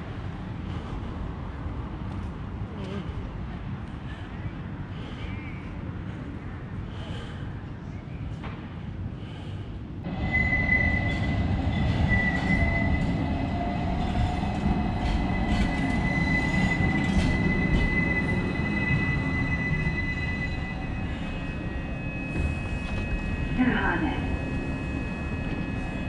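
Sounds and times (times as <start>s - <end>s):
tram rumbling on rails: 0.0s - 26.0s
high-pitched wheel squeal: 10.1s - 26.0s.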